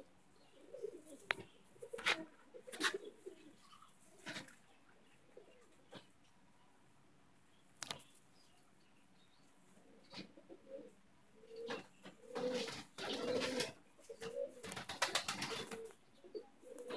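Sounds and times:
pigeon cooing: 0:00.0 - 0:04.5, 0:09.8 - 0:16.9.

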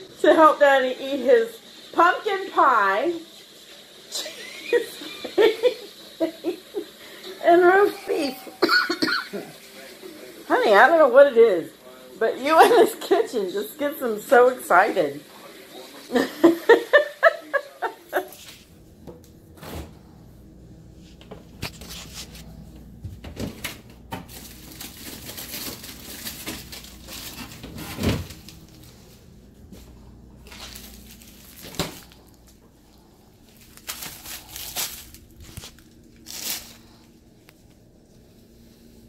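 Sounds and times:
faint steady hum: 0:16.2 - 0:39.0
rustling: 0:24.3 - 0:29.8, 0:30.4 - 0:32.6, 0:33.4 - 0:37.2.

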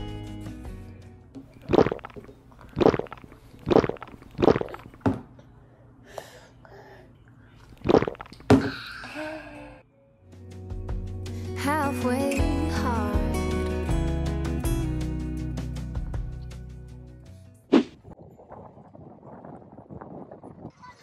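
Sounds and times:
toddler swallowing loudly: 0:01.6 - 0:05.0, 0:07.8 - 0:08.9.

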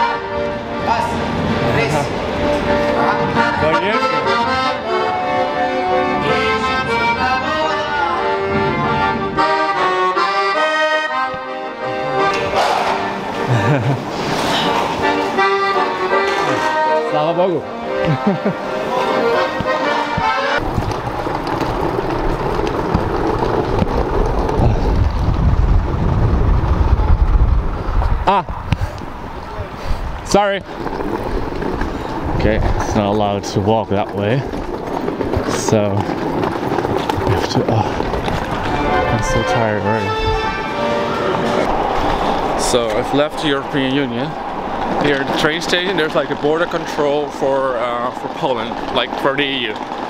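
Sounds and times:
piano accordion melody: 0:00.0 - 0:20.6, 0:38.6 - 0:43.3
wind buffeting microphone: 0:20.6 - 0:50.0.

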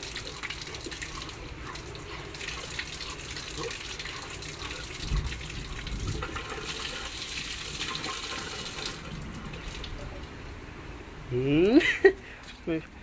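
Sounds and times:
water running from a tap: 0:00.0 - 0:10.0.

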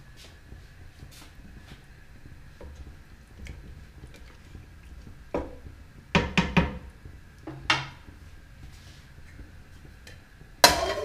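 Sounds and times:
wooden spoon knocking metal pot: 0:06.2 - 0:06.8, 0:10.6 - 0:11.0.

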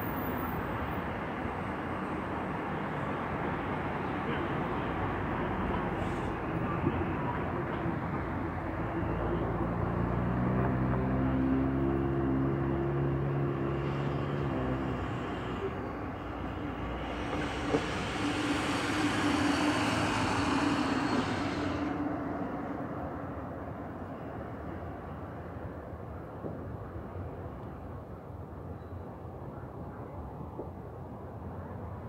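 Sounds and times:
heavy vehicle engine droning: 0:05.0 - 0:22.7
vehicle passing: 0:09.8 - 0:22.2.

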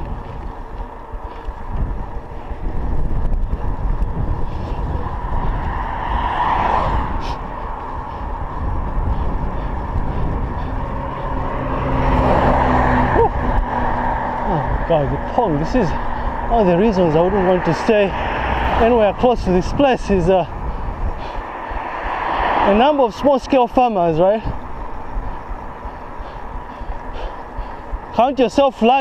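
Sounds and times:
car passing: 0:00.0 - 0:29.0
wind and road rumble: 0:00.0 - 0:29.0
van engine humming by: 0:10.7 - 0:19.0.

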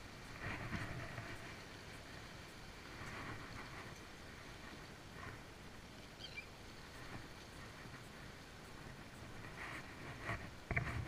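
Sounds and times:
wind on microphone: 0:00.0 - 0:11.0.

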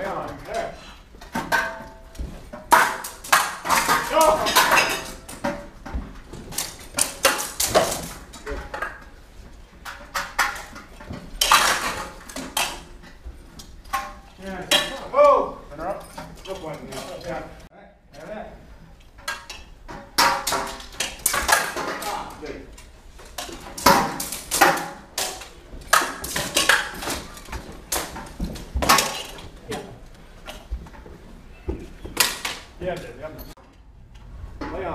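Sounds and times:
swords clashing: 0:01.4 - 0:05.7, 0:06.3 - 0:09.0, 0:13.9 - 0:17.2, 0:19.3 - 0:22.4, 0:23.3 - 0:30.0
steel swords clashing: 0:02.6 - 0:05.4.

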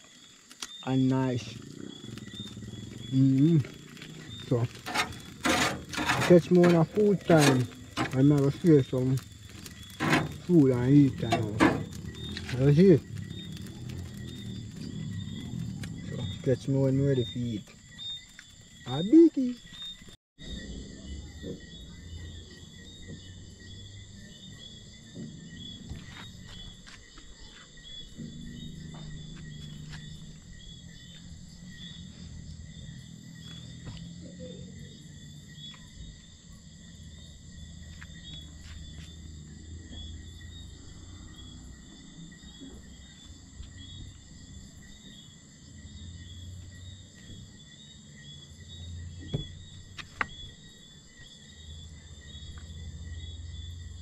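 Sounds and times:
crickets trilling: 0:00.0 - 0:54.0
low rumble: 0:08.6 - 0:17.4.

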